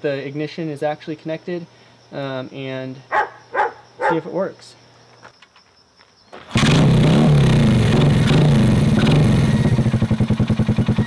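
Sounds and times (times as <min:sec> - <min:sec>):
motorcycle engine starting and idling: 0:06.3 - 0:11.0.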